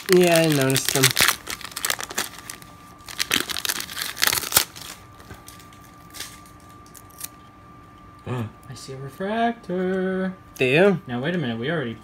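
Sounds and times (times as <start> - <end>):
foil wrapper crinkling: 0.0 - 7.4.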